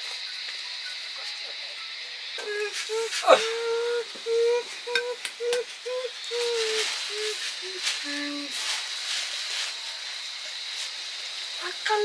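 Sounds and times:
steady hiss: 0.0 - 12.0
person humming a tune: 2.4 - 8.6
plastic bag rustling: 6.4 - 10.0.

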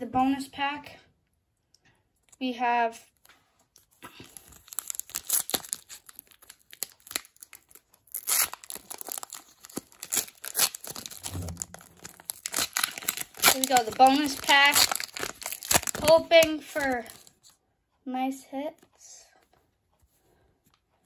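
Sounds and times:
foil wrapper crinkling and tearing: 3.7 - 17.5.

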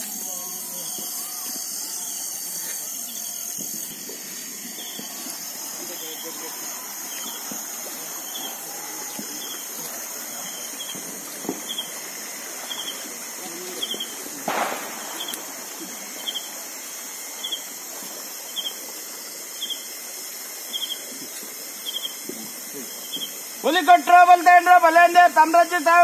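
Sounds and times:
footsteps: 0.0 - 17.0
insect chorus hiss: 0.0 - 26.0
insect pulsed chirp: 0.0 - 26.0.

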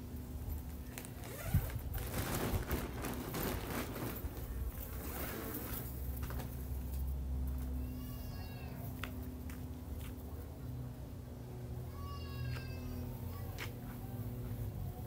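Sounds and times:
rustling cut grass: 0.0 - 7.6.

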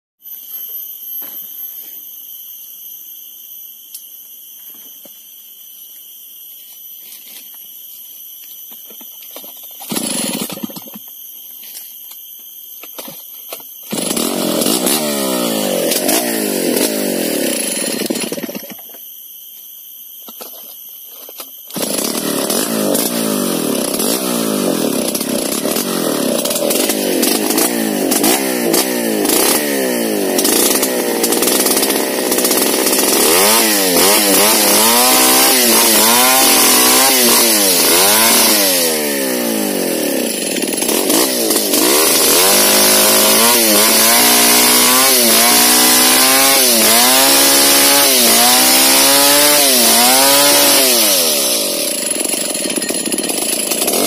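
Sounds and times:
high-pitched buzz: 0.2 - 54.0
chainsaw engine revving: 9.8 - 11.0, 13.9 - 18.8, 21.7 - 54.0.

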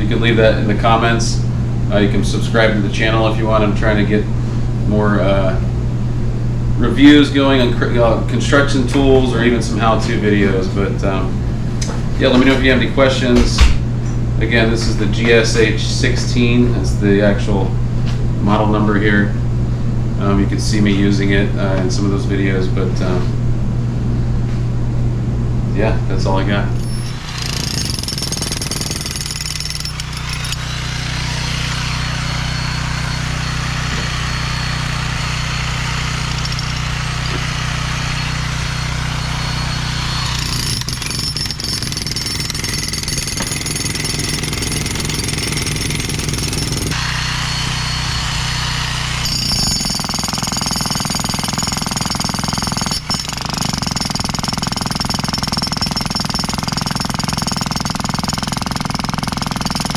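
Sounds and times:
breaker hammer on concrete: 26.8 - 32.3, 36.1 - 47.0, 47.6 - 59.9.

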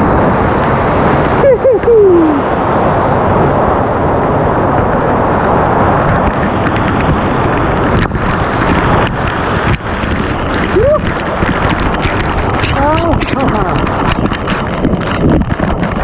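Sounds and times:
rushing creek water: 4.4 - 16.0.

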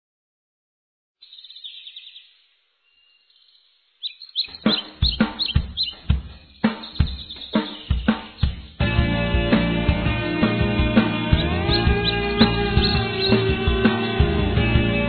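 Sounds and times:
birds chirping: 1.2 - 15.0
music with drum-kit beat: 4.5 - 15.0.

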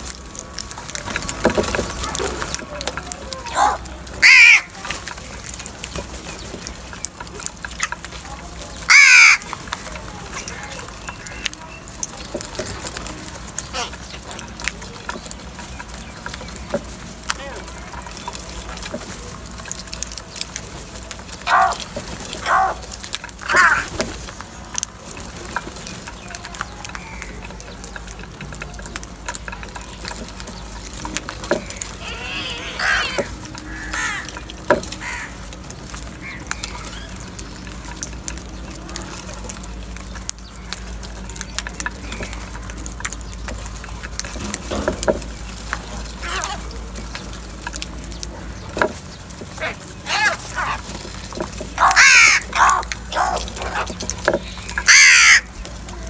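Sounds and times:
beaks pecking grain from plastic bowl: 0.0 - 56.0
crows cawing: 3.5 - 5.2, 8.8 - 11.6, 21.4 - 24.0, 26.9 - 27.5, 31.5 - 37.1, 46.1 - 46.7, 49.4 - 55.6.

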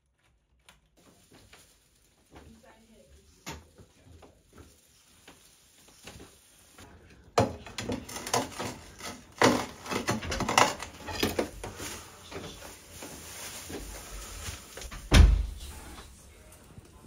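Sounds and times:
bricks clattering and scraping: 7.7 - 11.7.

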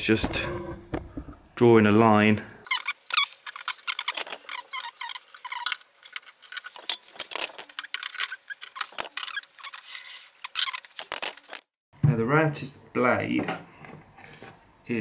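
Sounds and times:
pencil squeaks: 2.7 - 11.6.

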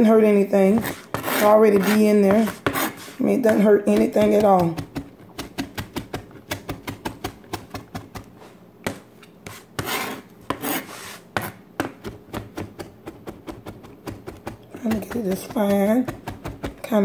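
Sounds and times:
knife scraping cutting board: 0.6 - 4.6, 9.4 - 11.6
knife chopping on plastic board: 0.6 - 17.0.

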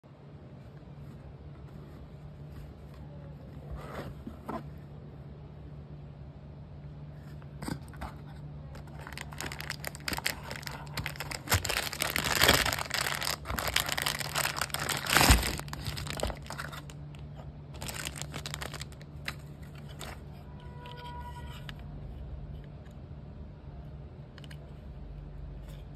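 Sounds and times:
plastic bag crinkling: 8.7 - 20.3
cardboard box rustling: 8.8 - 17.0, 17.7 - 20.3.

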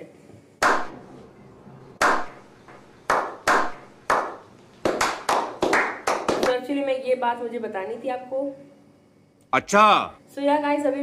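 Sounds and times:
people clapping: 0.6 - 1.0, 2.0 - 2.4, 3.1 - 6.6.

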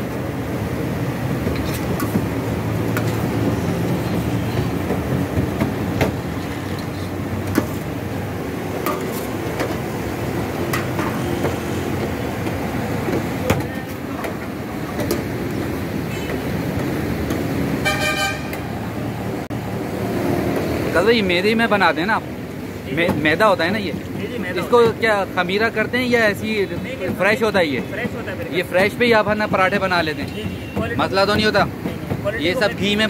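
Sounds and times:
traffic noise: 0.0 - 33.0
vehicle horn toot: 17.8 - 18.6, 30.2 - 31.0.

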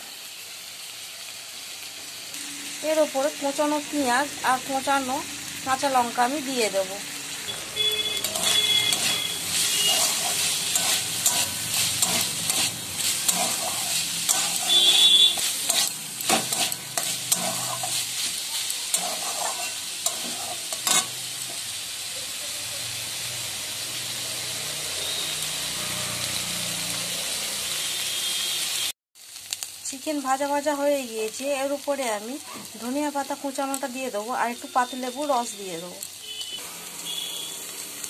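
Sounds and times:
meat sizzling in hot oil: 0.0 - 38.0
metal spatula scraping pan: 7.5 - 21.6.

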